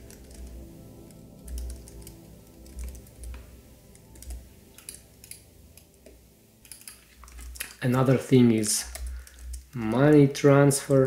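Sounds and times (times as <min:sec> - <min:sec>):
typing on computer keyboard: 0:01.4 - 0:03.4, 0:06.7 - 0:10.3.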